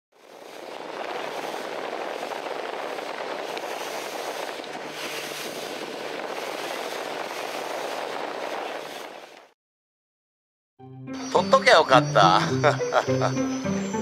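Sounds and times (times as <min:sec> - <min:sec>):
wind and water rushing: 0:00.1 - 0:09.5.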